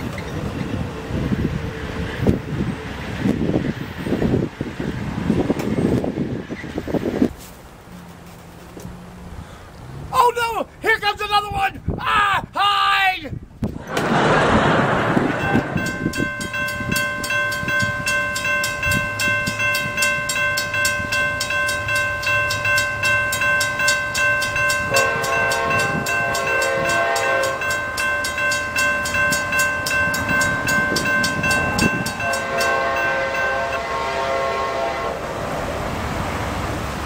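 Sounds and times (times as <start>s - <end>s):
railroad crossing bell ringing: 15.2s - 35.0s
train horn blast: 24.9s - 27.8s, 32.0s - 35.4s.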